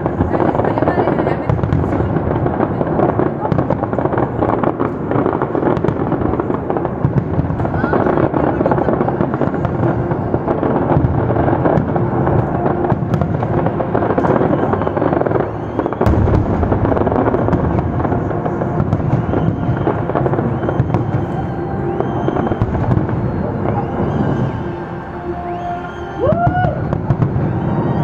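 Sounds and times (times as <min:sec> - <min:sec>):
fireworks crackling and banging: 0:00.0 - 0:28.0
heavy low bang: 0:16.0 - 0:19.4.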